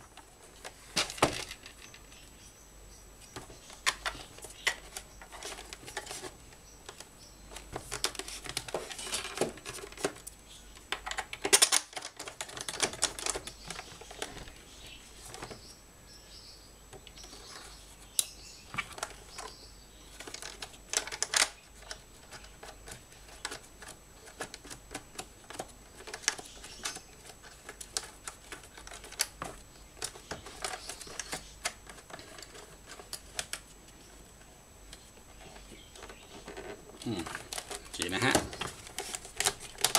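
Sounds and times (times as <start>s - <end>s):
plastic and metal parts clicking: 10.8s - 14.4s, 20.2s - 33.6s, 36.0s - 39.9s.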